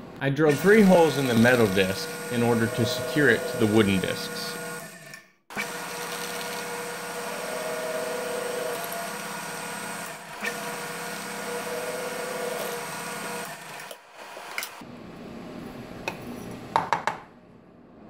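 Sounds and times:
drill press whining: 0:00.5 - 0:14.8.

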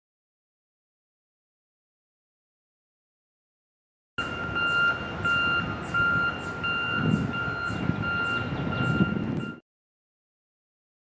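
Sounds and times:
back-up alarm beeping: 0:04.2 - 0:09.6.

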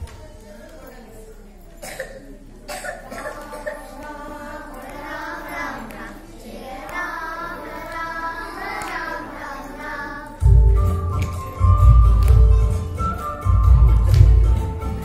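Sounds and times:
girls singing a chant in unison: 0:02.7 - 0:10.6.

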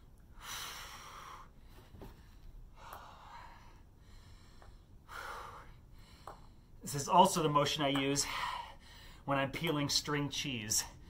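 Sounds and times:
man breathing hard: 0:00.3 - 0:06.8, 0:08.2 - 0:09.3.

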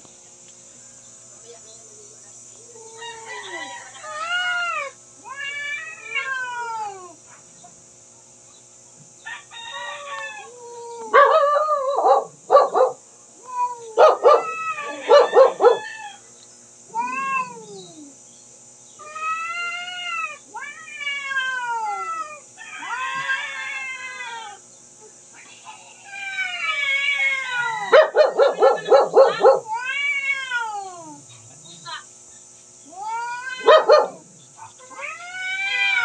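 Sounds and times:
cats yowling: 0:02.7 - 0:07.3, 0:09.8 - 0:16.2, 0:16.9 - 0:18.2, 0:19.0 - 0:24.7, 0:26.0 - 0:31.3, 0:32.9 - 0:36.0.

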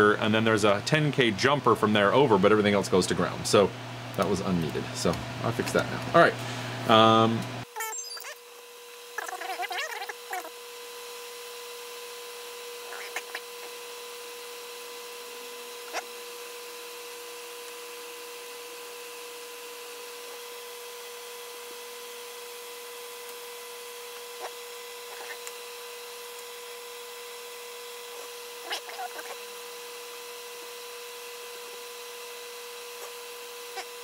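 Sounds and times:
steady hum and hiss: 0:00.0 - 0:07.7.

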